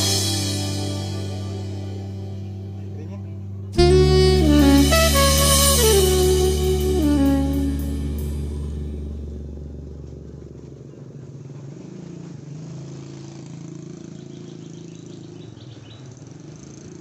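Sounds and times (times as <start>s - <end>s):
background music: 0.0s - 9.6s
motorbikes passing by: 0.0s - 17.0s
small motorcycle engines running: 3.8s - 17.0s.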